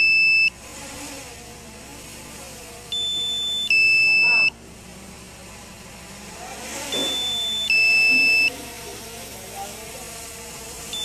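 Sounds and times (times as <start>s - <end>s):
steady high alarm beep: 0.0s - 0.5s, 2.9s - 4.5s, 6.9s - 8.5s
two-tone alarm beep: 0.0s - 0.5s, 2.9s - 4.5s, 6.9s - 8.5s.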